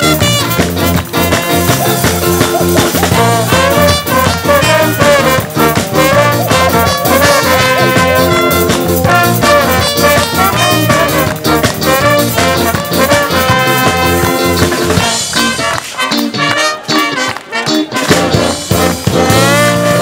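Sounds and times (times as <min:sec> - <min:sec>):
brass band playing: 0:00.0 - 0:20.0
trumpet solo: 0:00.0 - 0:20.0.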